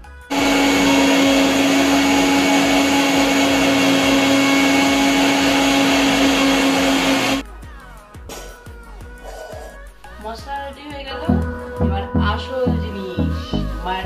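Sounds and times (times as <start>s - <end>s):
mixer grinder motor whine: 0.0s - 7.4s.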